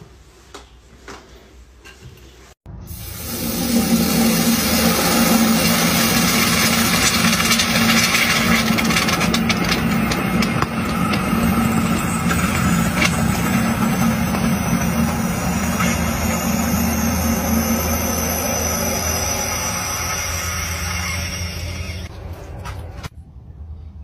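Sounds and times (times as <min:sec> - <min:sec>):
steady low hum: 0:02.7 - 0:23.7
hot metal ball sizzling on ice: 0:02.9 - 0:22.1
ice cracking: 0:03.2 - 0:21.5.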